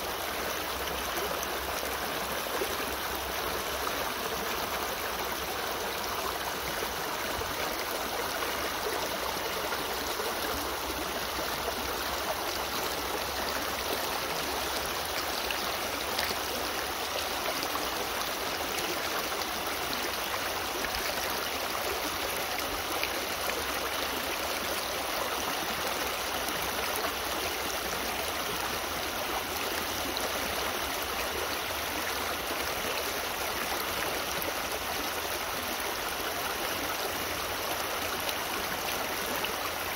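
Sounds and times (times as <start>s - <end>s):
creek rushing over stones: 0.0s - 39.9s.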